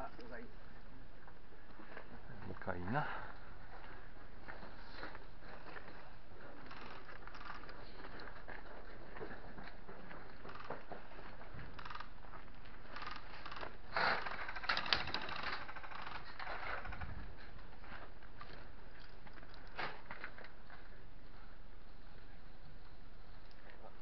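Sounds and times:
small clicks and rattles: 5.6 - 20.9.

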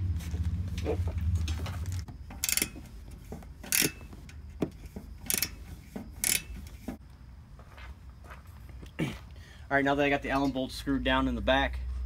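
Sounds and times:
hand ratchet clicking: 2.3 - 2.9, 3.6 - 4.4, 5.2 - 5.6, 6.2 - 6.9.

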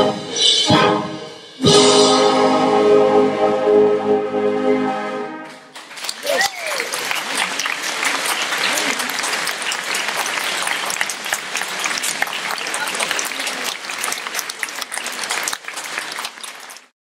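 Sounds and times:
audience applauding: 5.7 - 17.0.

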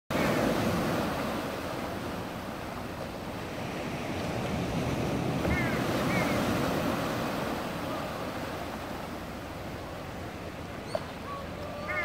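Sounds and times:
sea waves washing: 0.1 - 12.0
gull calls: 5.4 - 6.5, 10.8 - 12.0.

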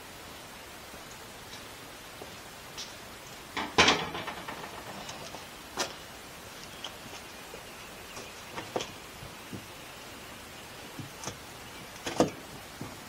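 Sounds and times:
window pane rattling: 3.6 - 5.5.

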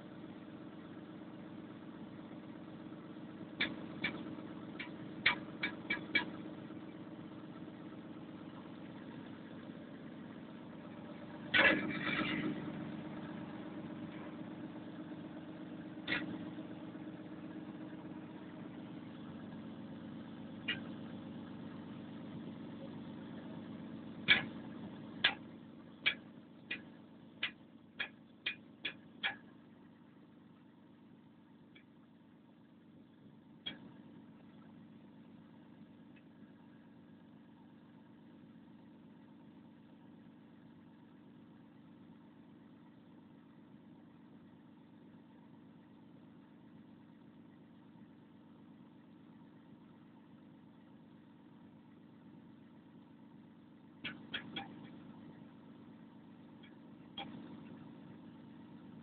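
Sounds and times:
diesel engine idling: 0.0 - 37.9
sharp engine knocks: 3.6 - 6.4, 24.2 - 29.5.

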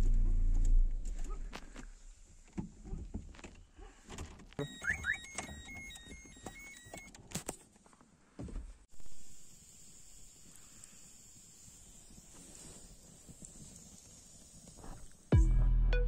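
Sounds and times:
short high electronic beeps: 4.6 - 7.1.

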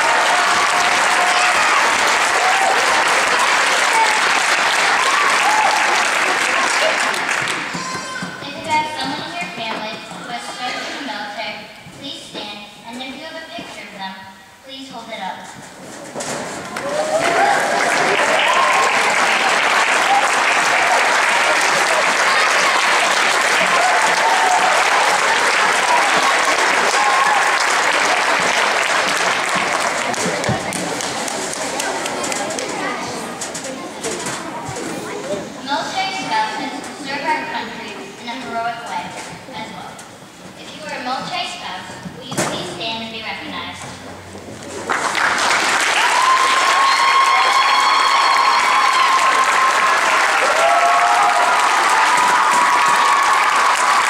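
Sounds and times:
crowd of children applauding: 0.0 - 8.4, 16.7 - 33.2, 44.8 - 54.0.

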